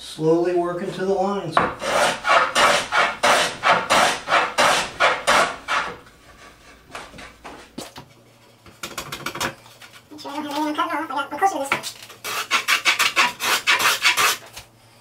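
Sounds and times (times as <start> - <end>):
hand plane scraping wood: 1.8 - 7.2, 12.2 - 14.5.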